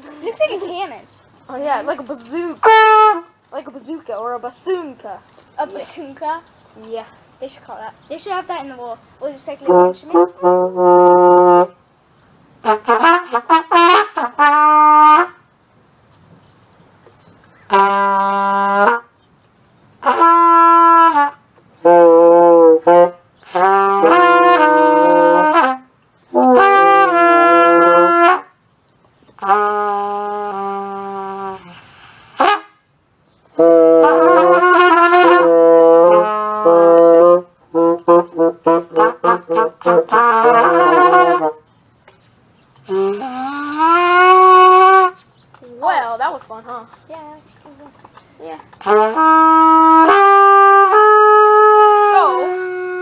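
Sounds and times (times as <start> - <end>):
cornet playing held notes: 2.5 - 3.6, 9.6 - 12.0, 12.6 - 15.5, 17.7 - 19.2, 20.0 - 28.6, 29.4 - 41.6, 42.8 - 45.2, 48.7 - 53.0
bassoon low note: 42.9 - 45.1, 48.8 - 53.0.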